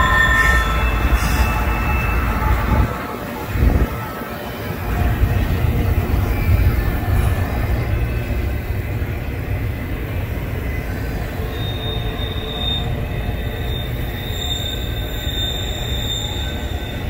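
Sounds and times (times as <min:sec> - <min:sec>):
high-pitched wheel squeal: 0:00.0 - 0:02.9, 0:11.4 - 0:17.0
freight train wheels rumbling: 0:00.0 - 0:17.0.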